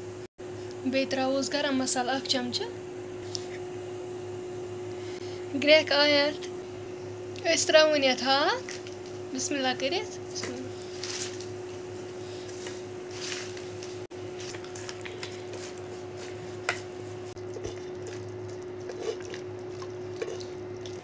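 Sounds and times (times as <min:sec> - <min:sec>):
cooktop hum: 0:00.0 - 0:21.0
wooden spoon stirring greens: 0:12.5 - 0:21.0.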